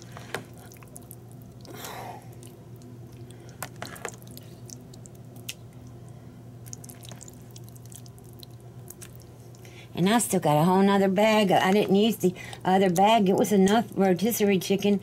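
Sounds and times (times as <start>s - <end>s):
steady low hum: 0.0s - 15.0s
wet squishing of thick filling: 0.5s - 5.9s, 6.6s - 9.7s.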